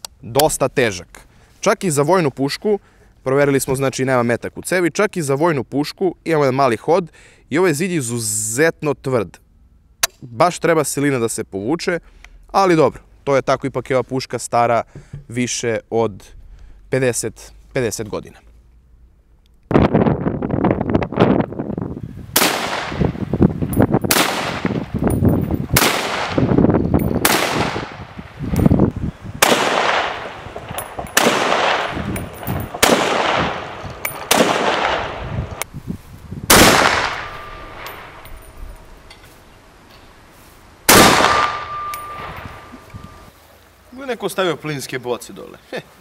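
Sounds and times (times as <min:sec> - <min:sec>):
rifle shots: 0:22.4 - 0:23.1, 0:24.1 - 0:24.8, 0:25.8 - 0:26.5, 0:27.2 - 0:28.1, 0:29.4 - 0:35.3, 0:36.5 - 0:38.2, 0:40.9 - 0:42.7
steel plate target ringing: 0:37.0 - 0:39.0, 0:41.2 - 0:43.3.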